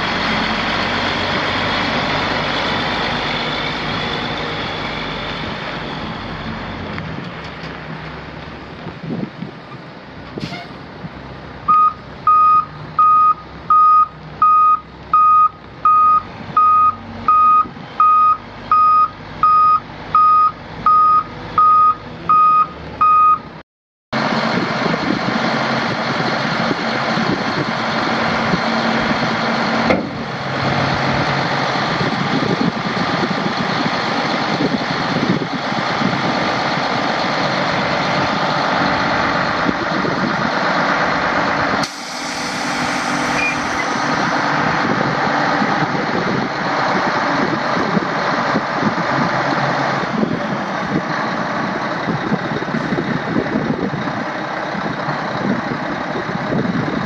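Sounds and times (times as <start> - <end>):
diesel engine running: 0.0 - 23.6, 24.2 - 57.0
truck backup alarm beeping: 11.7 - 23.6, 41.8 - 44.4.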